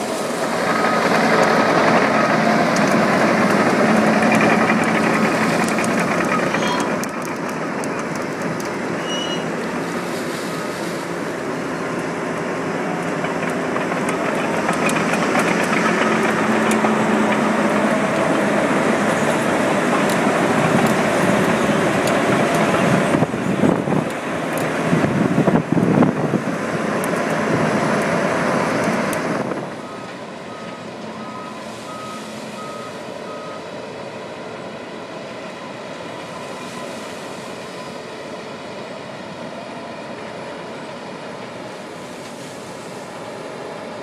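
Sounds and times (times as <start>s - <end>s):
dozer diesel engine under load: 0.0s - 44.0s.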